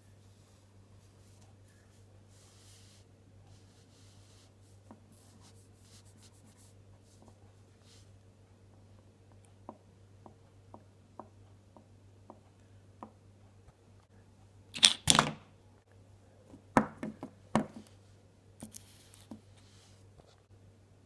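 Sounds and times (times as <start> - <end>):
rustling of toy figures: 17.7 - 20.5.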